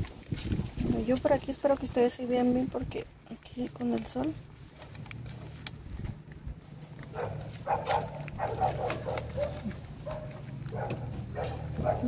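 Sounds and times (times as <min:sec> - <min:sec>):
animal calls: 0:07.1 - 0:12.0.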